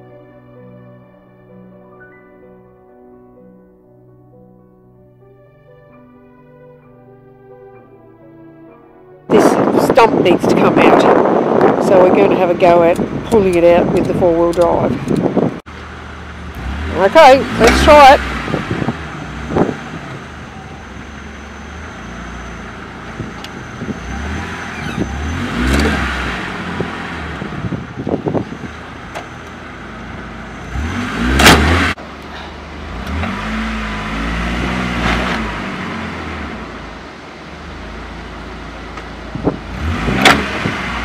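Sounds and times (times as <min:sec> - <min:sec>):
pickup engine revving: 0:09.4 - 0:41.0.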